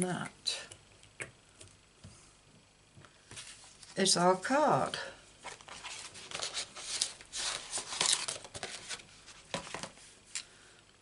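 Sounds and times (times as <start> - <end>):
paper rustling and scraping: 3.3 - 4.0, 5.4 - 10.1.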